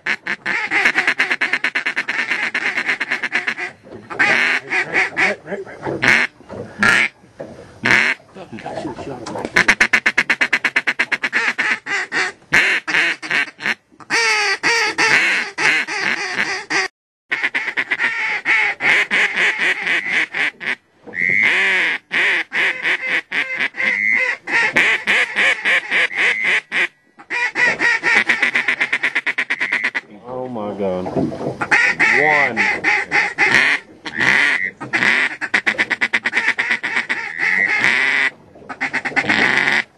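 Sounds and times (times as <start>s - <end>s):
duck call chuckling and quacks: 0.0s - 7.1s, 7.8s - 8.2s, 9.5s - 30.0s, 31.6s - 39.9s.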